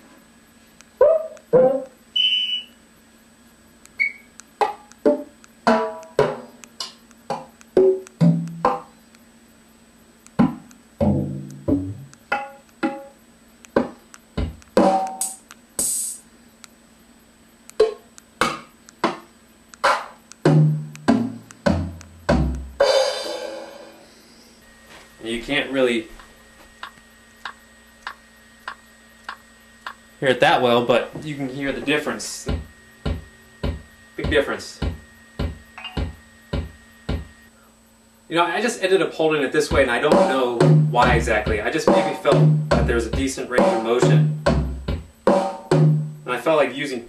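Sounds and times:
percussion sample hits: 4.6s - 6.6s, 7.3s - 8.9s, 10.4s - 13.2s, 13.8s - 16.2s, 19.8s - 24.1s, 32.5s - 37.3s, 39.7s - 46.2s
deep tom hits: 20.5s - 23.6s, 42.4s - 46.1s
long cymbal wash: 22.8s - 24.6s.

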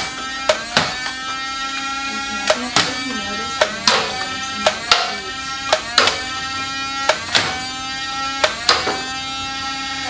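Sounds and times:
toy blaster motors whining: 0.0s - 10.0s
sharp clicks of dart shots: 3.6s - 5.1s, 5.7s - 6.2s, 7.0s - 7.6s, 8.4s - 9.0s.

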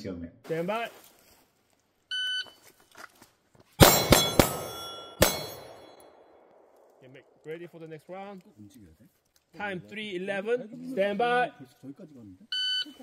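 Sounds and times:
metallic ring: 3.8s - 6.2s
pistol shots: 3.8s - 7.0s.

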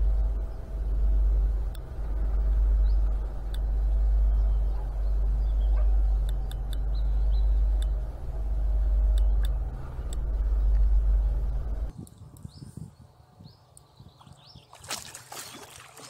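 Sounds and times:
wind buffeting microphone: 0.0s - 15.6s.

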